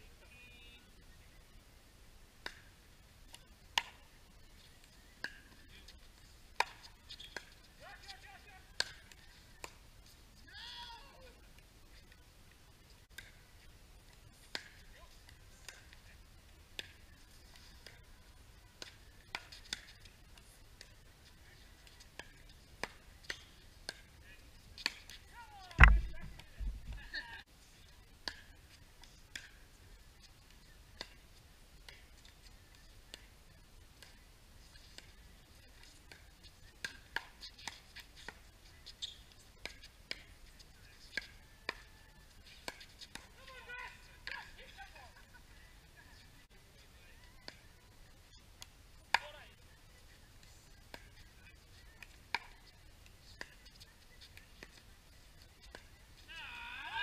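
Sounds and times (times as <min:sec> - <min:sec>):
paddles hitting plastic ball: 0:24.8 - 0:27.0
ball bouncing on hard court: 0:25.8 - 0:27.0.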